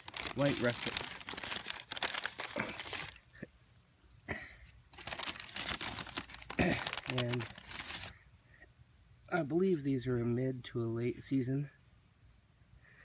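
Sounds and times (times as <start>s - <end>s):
paper bag crinkling: 0.0s - 3.3s, 5.0s - 8.1s.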